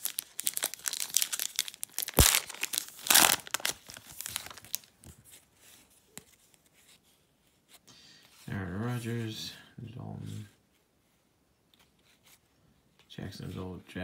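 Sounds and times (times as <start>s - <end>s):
foil wrapper crinkling and ripping: 0.0s - 5.1s
cards rustling: 0.0s - 7.8s.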